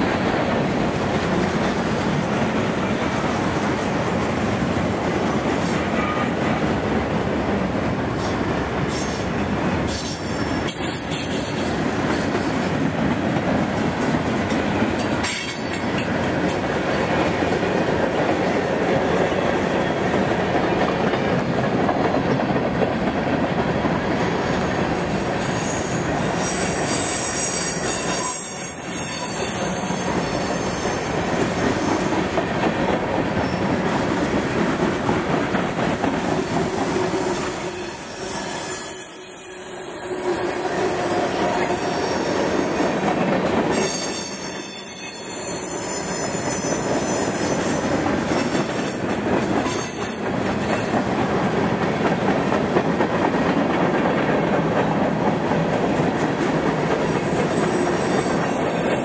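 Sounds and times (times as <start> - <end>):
train wheels rumbling on rails: 0.0 - 59.0
high wheel squeal: 25.5 - 31.2, 43.7 - 47.8.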